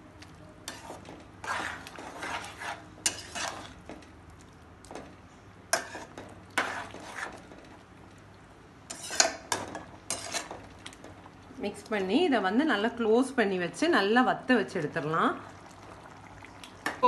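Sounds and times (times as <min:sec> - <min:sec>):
metal spoon scraping a pot: 0:00.7 - 0:03.8, 0:05.7 - 0:07.5, 0:08.9 - 0:10.6.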